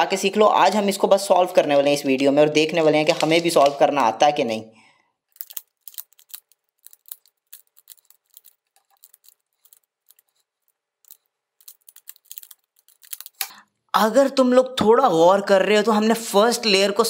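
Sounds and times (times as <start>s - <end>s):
puzzle cube clicking as turned: 5.3s - 13.6s.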